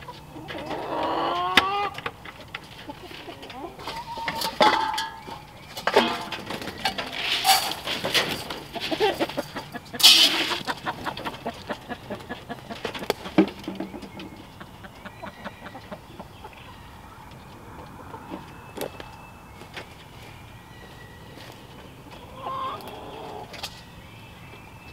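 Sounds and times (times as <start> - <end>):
hens clucking: 0.0 - 23.9
feed pan clattering: 4.2 - 10.8.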